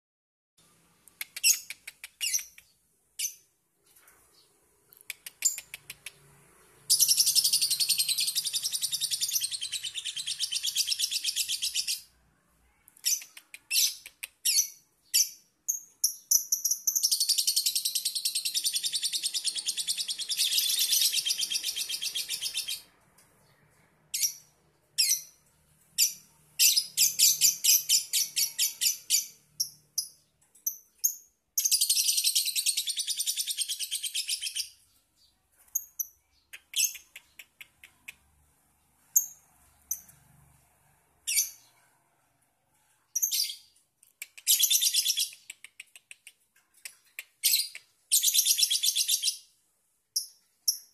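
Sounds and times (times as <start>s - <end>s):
bird chirps: 1.1s - 42.0s, 42.7s - 49.6s
lovebird chattering song: 1.2s - 2.6s, 6.8s - 12.1s, 13.0s - 22.9s, 26.0s - 34.9s, 35.7s - 38.2s, 44.3s - 46.1s, 47.2s - 49.5s.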